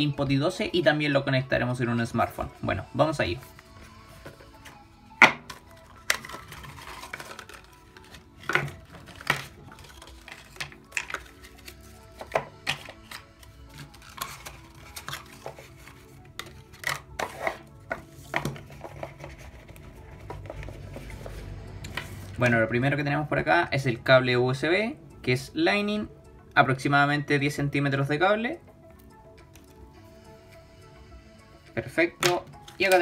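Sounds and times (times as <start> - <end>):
faint background music: 0.0 - 33.0
packaging taps and scrapes: 5.4 - 22.1.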